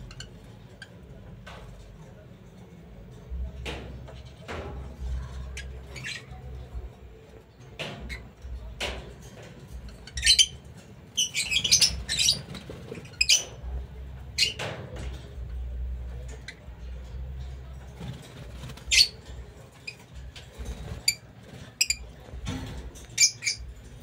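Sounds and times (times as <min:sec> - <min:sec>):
lovebirds chirping and squeaking: 0:00.0 - 0:01.1, 0:05.0 - 0:06.9, 0:07.8 - 0:08.9, 0:09.7 - 0:15.3, 0:16.1 - 0:24.0.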